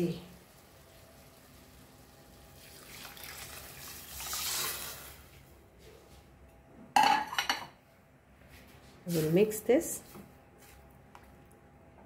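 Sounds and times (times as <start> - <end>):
liquid pouring into a pot: 0.4 - 5.4.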